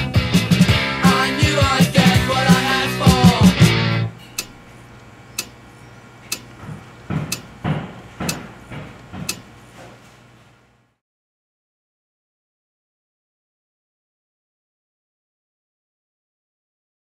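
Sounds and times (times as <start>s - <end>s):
rock music: 0.0s - 4.1s
wall clock ticking: 4.3s - 9.8s
soft knocks: 6.3s - 10.0s.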